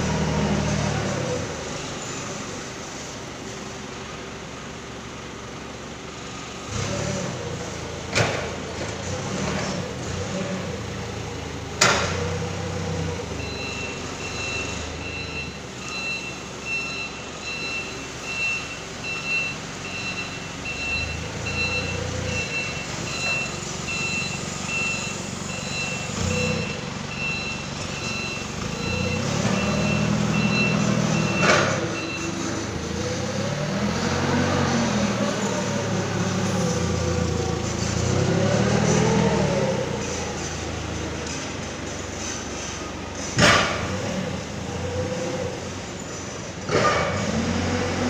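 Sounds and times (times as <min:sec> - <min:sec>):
forklift engine running: 0:00.0 - 0:48.0
reversing alarm beeping: 0:12.4 - 0:33.0.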